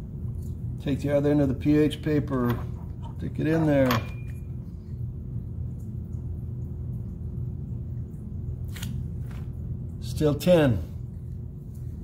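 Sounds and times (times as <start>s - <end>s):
low background hum: 0.0s - 12.0s
faint held tone: 3.8s - 4.6s.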